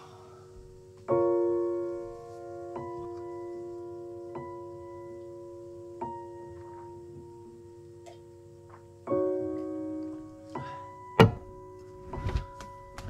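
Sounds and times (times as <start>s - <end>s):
soft piano chords: 0.0s - 13.0s
sharp knock: 11.2s - 11.5s.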